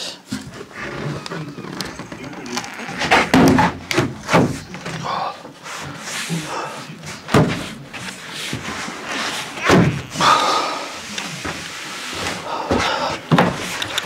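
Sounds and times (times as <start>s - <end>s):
heavy thumps: 0.3s - 5.1s, 7.3s - 10.4s
wooden panel knocking and scraping: 1.8s - 5.0s.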